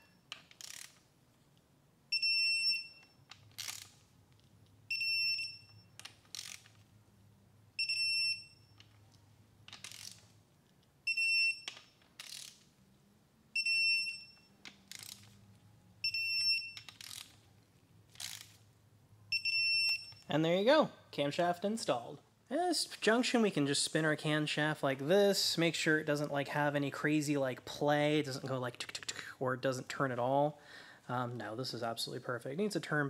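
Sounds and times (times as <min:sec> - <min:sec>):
wrench ratchet rasp: 0:00.5 - 0:01.0, 0:06.3 - 0:06.7, 0:09.8 - 0:10.2, 0:12.2 - 0:12.6.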